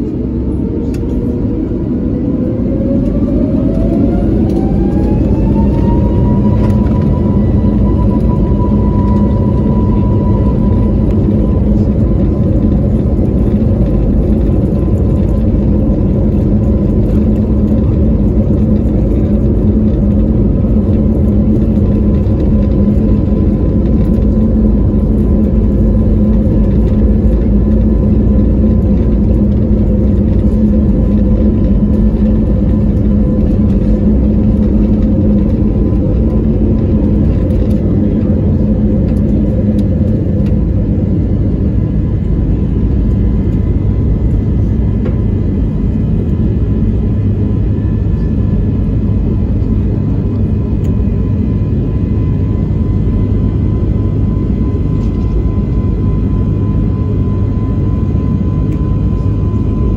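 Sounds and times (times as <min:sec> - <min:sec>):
jet engines roaring: 0:00.0 - 0:59.9.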